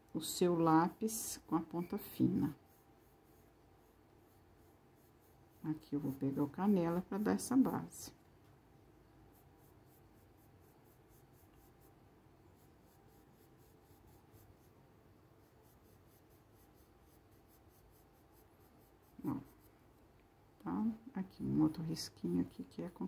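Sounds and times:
pencil scratching on paper: 0:00.5 - 0:08.1, 0:09.0 - 0:19.8.

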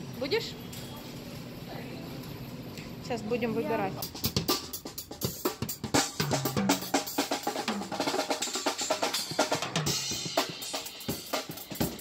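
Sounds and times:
bass drum hits: 0:05.7 - 0:08.0.

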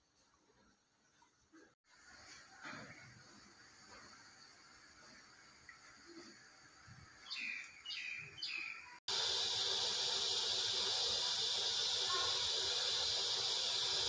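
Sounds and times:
oil sizzling in a wok: 0:01.8 - 0:07.9, 0:08.8 - 0:14.0
bird chirps: 0:07.2 - 0:09.0.

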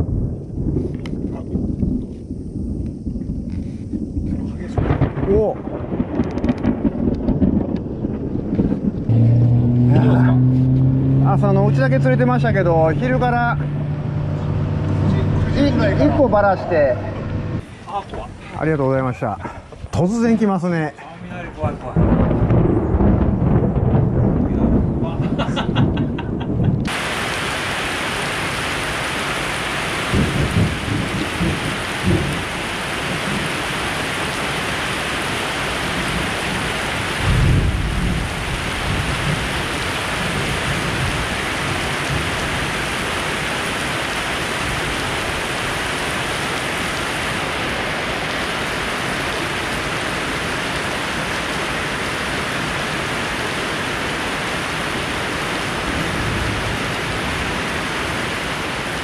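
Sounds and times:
thunder rolling: 0:00.0 - 0:17.7, 0:21.6 - 0:28.6, 0:30.0 - 0:34.7, 0:35.8 - 0:43.8
heavy rain pouring: 0:00.0 - 0:19.4, 0:20.0 - 0:59.0.

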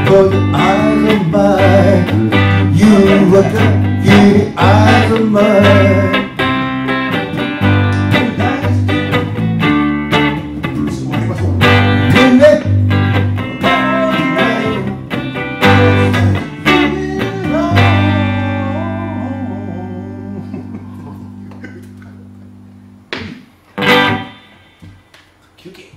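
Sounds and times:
person singing: 0:00.0 - 0:06.4, 0:08.1 - 0:09.4, 0:12.1 - 0:12.9, 0:13.6 - 0:22.1
electric guitar strumming: 0:00.0 - 0:25.1.

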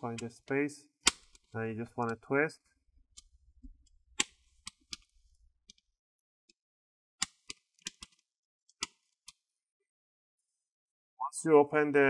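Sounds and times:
plastic clips clicking loose: 0:01.0 - 0:02.2.

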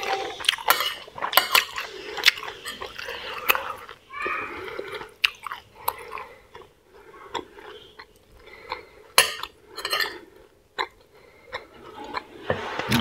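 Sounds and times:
metal spoon clinking on plate: 0:00.6 - 0:01.8, 0:09.2 - 0:10.2.

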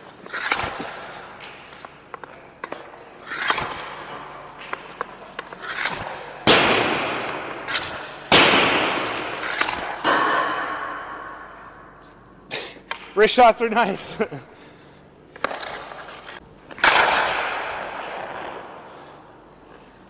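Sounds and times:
hockey stick hitting puck: 0:00.0 - 0:11.9, 0:15.4 - 0:19.2.

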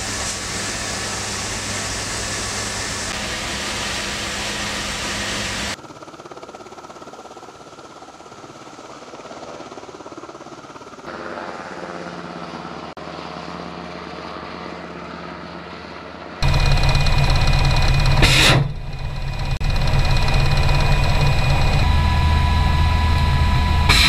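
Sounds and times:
steady drone: 0:00.0 - 0:05.8, 0:16.4 - 0:24.0
helicopter rotor and turbine: 0:00.0 - 0:24.0
loud abrupt sound: 0:16.4 - 0:24.0.

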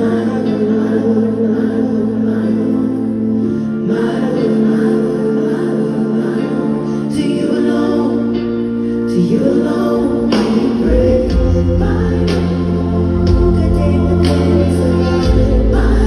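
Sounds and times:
choir-like voices: 0:00.0 - 0:16.0
person singing: 0:00.0 - 0:16.0
live band music: 0:09.2 - 0:16.0
deep bass: 0:10.2 - 0:16.0.

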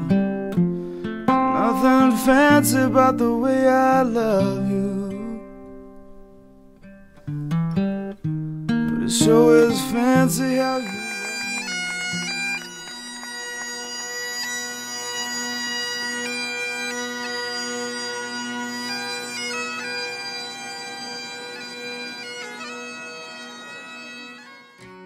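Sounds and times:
bagpipes playing slow tune: 0:09.3 - 0:25.0.

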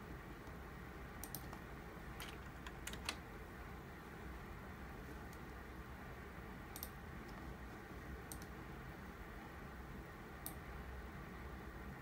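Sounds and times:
steady low hum: 0:00.0 - 0:12.0
computer mouse clicks: 0:01.2 - 0:01.6, 0:02.2 - 0:03.2, 0:06.7 - 0:07.4, 0:08.2 - 0:08.6, 0:10.4 - 0:10.6.

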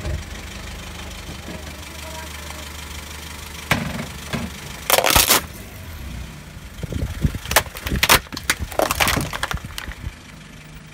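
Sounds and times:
car engine idling: 0:00.0 - 0:10.9
plastic cracking under car tyre: 0:04.8 - 0:05.5, 0:07.2 - 0:10.1.

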